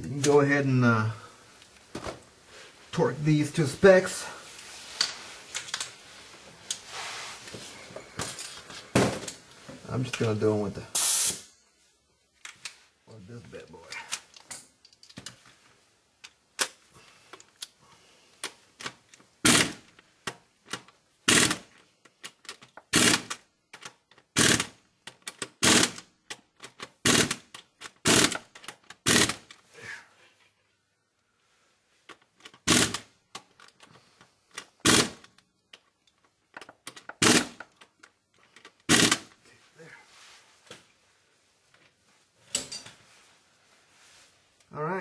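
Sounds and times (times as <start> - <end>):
ratchet wrench clicking: 24.4 - 24.7, 38.9 - 39.2.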